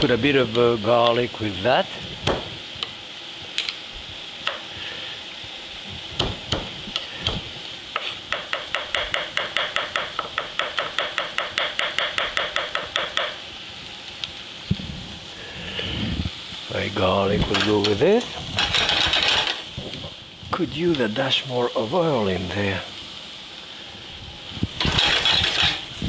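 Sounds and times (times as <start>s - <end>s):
onion sizzling in skillet: 0.0s - 26.0s
knife chopping on wooden board: 6.2s - 6.7s, 8.0s - 13.4s.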